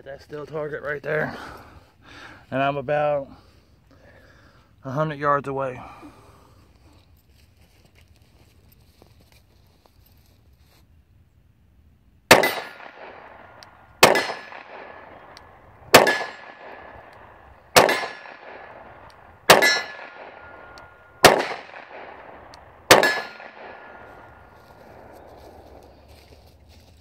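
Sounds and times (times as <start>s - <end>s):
steel target ringing clang: 12.3s - 13.2s, 14.0s - 15.2s, 16.0s - 16.9s, 17.8s - 18.4s, 19.5s - 22.3s, 22.9s - 24.3s
pistol shots: 12.3s - 25.8s.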